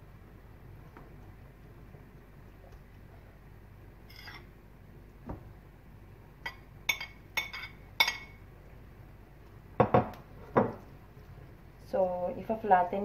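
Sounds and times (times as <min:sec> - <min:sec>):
metal spoon clinking on plate: 0:06.5 - 0:08.4.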